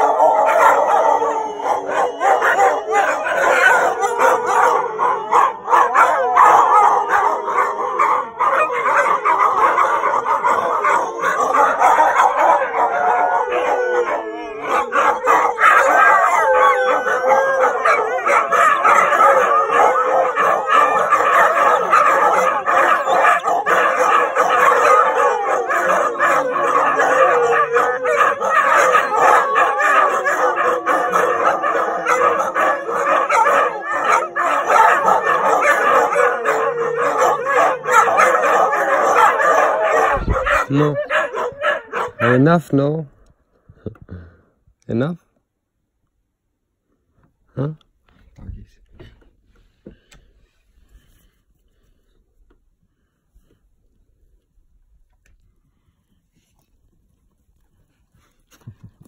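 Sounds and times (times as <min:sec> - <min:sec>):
huskies howling in chorus: 0:00.0 - 0:43.1.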